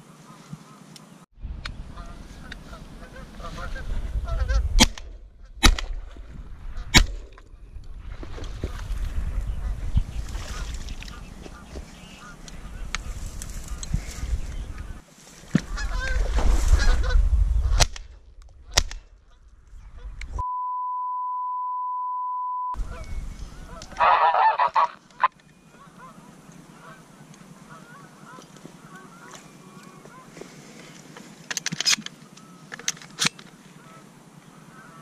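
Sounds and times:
wind: 0:00.0 - 0:20.7, 0:22.7 - 0:35.0
geese honking: 0:01.9 - 0:04.6, 0:10.5 - 0:13.9, 0:15.6 - 0:16.2, 0:22.8 - 0:30.4, 0:33.7 - 0:35.0
shotgun shots: 0:04.8 - 0:06.0, 0:06.9 - 0:07.3
steady one-pitch beep: 0:20.4 - 0:22.8.

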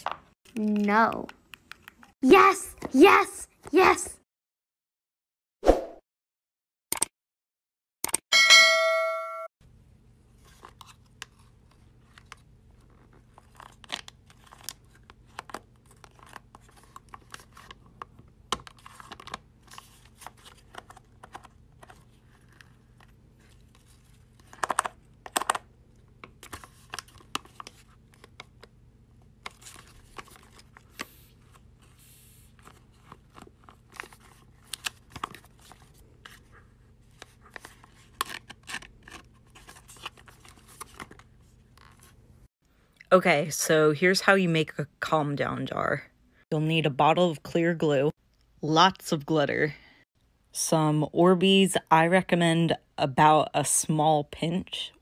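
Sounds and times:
paper rustling: 0:29.4 - 0:42.1.

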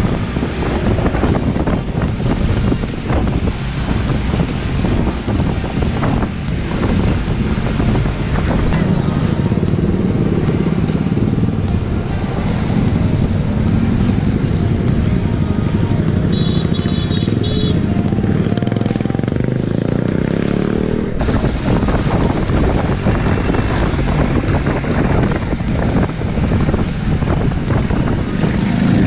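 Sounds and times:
road and traffic noise: 0:00.0 - 0:29.0
scooter engine running: 0:07.2 - 0:29.0.

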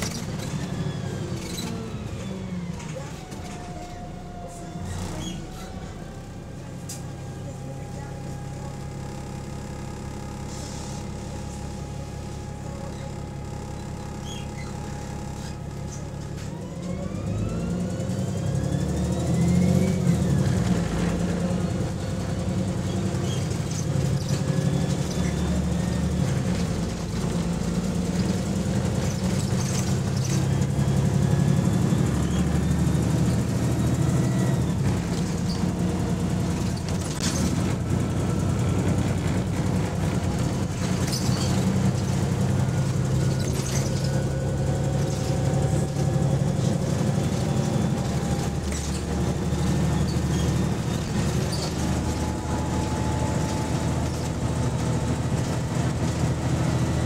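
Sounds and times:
gearbox whine: 0:00.0 - 0:06.5, 0:11.1 - 0:57.0
bus engine idling and accelerating: 0:00.0 - 0:57.0.

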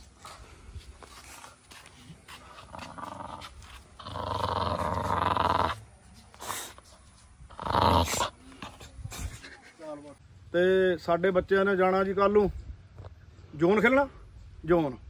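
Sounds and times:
puppy growling: 0:02.5 - 0:05.8, 0:07.5 - 0:08.9.

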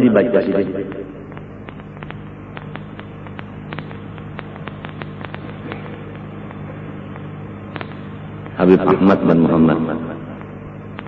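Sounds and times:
background hum and hiss: 0:00.0 - 0:11.0
scattered clicks: 0:00.8 - 0:08.6, 0:10.4 - 0:11.0.

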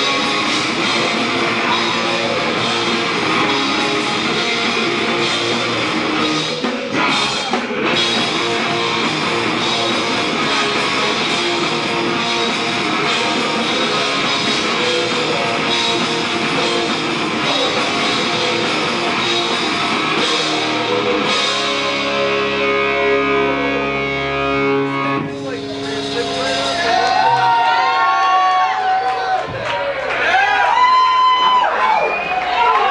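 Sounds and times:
drum kit: 0:00.0 - 0:28.3
heavy rock band playing: 0:00.0 - 0:29.6
guitar chord ringing: 0:20.4 - 0:26.8.

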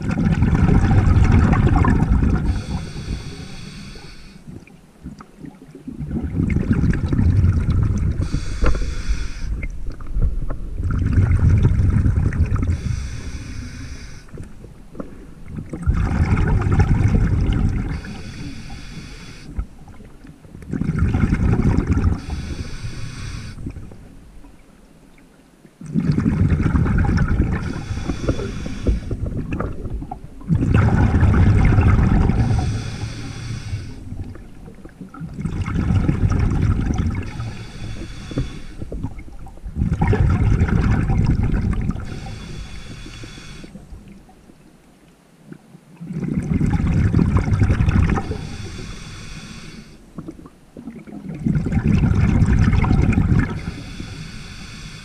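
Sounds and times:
exhaled bubbles underwater: 0:00.0 - 0:44.8, 0:45.4 - 0:55.0
regulator hiss: 0:02.5 - 0:04.4, 0:08.2 - 0:09.6, 0:12.7 - 0:14.3, 0:18.0 - 0:19.6, 0:22.2 - 0:23.7, 0:27.6 - 0:29.2, 0:32.4 - 0:34.0, 0:37.4 - 0:38.9, 0:42.0 - 0:43.8, 0:48.2 - 0:50.0, 0:53.6 - 0:55.0.

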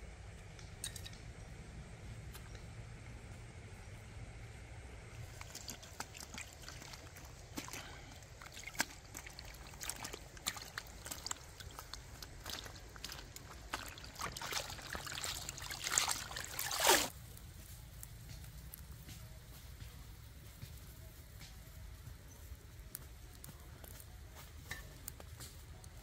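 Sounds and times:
basket swished in river water: 0:05.2 - 0:17.2.

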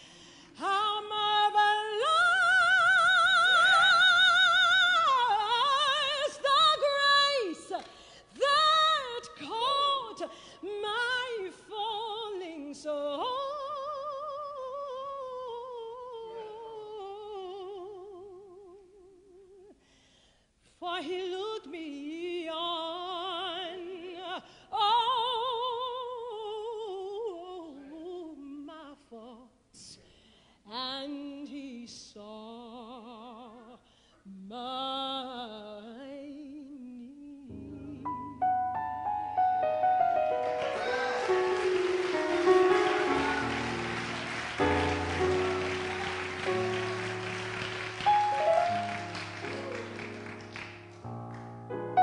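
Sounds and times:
singer breathing: 0:00.0 - 0:00.6, 0:07.9 - 0:08.4, 0:10.3 - 0:10.6, 0:19.8 - 0:20.6, 0:30.0 - 0:30.7
operatic soprano singing: 0:00.5 - 0:19.8, 0:20.8 - 0:29.5.

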